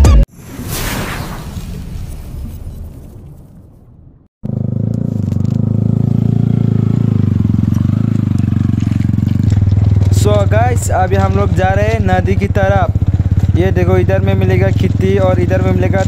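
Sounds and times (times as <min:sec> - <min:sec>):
motorcycle engine idling low: 0:05.6 - 0:16.0.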